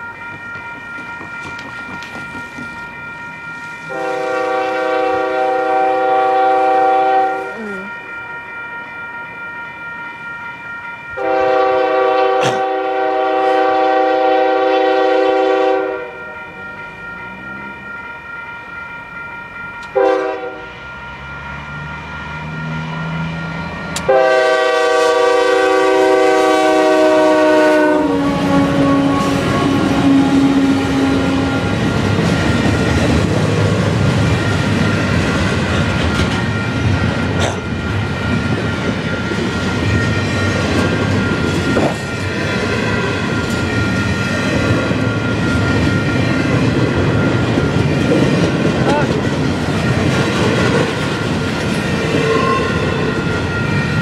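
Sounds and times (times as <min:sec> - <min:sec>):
train rumbling and clattering past: 0:00.0 - 0:54.0
locomotive air horn blasts: 0:03.9 - 0:07.8, 0:11.2 - 0:16.2, 0:20.0 - 0:20.7, 0:24.0 - 0:31.6, 0:52.2 - 0:52.9.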